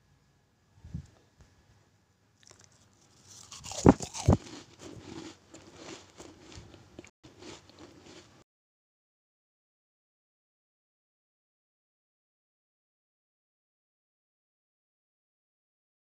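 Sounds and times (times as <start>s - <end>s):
cookie crackling and crunching: 2.4s - 8.4s.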